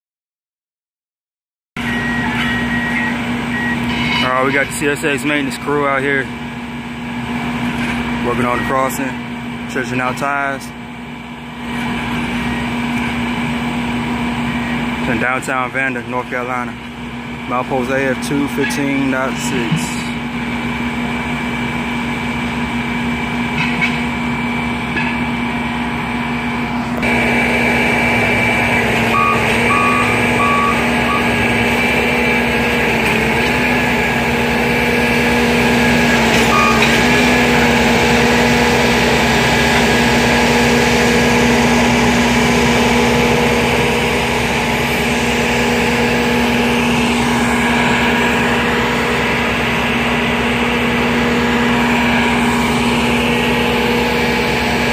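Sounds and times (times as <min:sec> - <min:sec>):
backup alarm beeps: 0:01.8 - 0:04.3, 0:29.0 - 0:31.6, 0:36.4 - 0:37.0
diesel engines running: 0:01.8 - 0:54.9.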